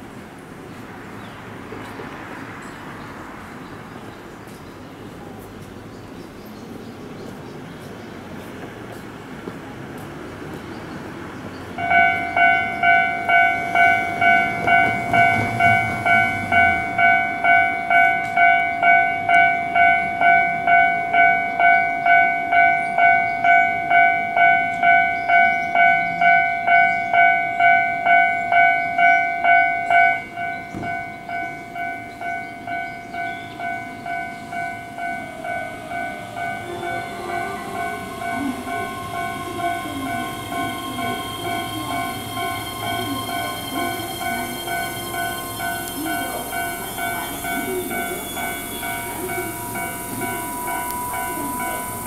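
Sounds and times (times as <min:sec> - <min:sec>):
train braking to a stop: 0:11.5 - 0:52.0
level crossing alarm dinging: 0:11.8 - 0:52.0.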